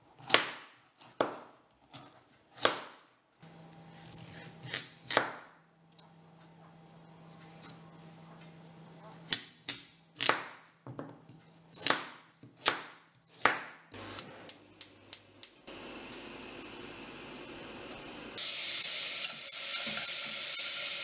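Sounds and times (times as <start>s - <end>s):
knife chopping pumpkin on board: 0.2s - 3.0s, 4.6s - 5.4s, 9.2s - 13.8s.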